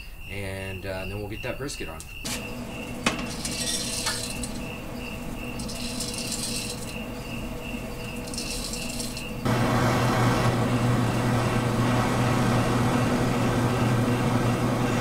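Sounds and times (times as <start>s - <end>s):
crickets chirping: 0.0s - 9.5s
wood pellets rattling: 2.3s - 9.5s.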